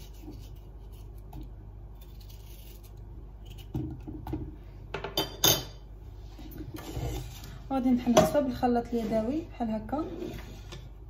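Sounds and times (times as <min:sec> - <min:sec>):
knife scraping tomato skin: 0:00.0 - 0:04.1.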